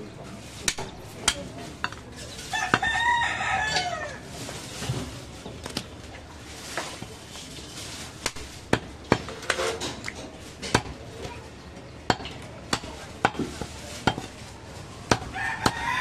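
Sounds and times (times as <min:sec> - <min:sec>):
cleaver chopping meat on wood: 0:08.2 - 0:09.6, 0:10.6 - 0:11.0, 0:12.1 - 0:14.3, 0:15.1 - 0:16.0.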